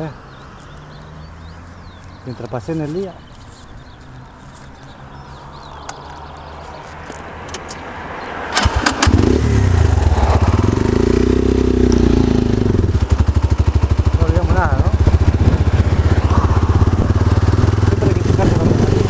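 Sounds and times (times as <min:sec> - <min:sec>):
motorcycle engine running: 0:09.0 - 0:19.0
low rumble: 0:14.5 - 0:19.0.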